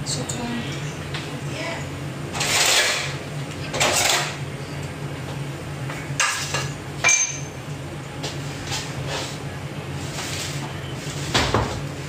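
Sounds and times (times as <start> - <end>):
steady low hum: 0.0 - 12.0
dish scraping on counter: 2.4 - 3.2
dishes clinking: 6.2 - 7.6.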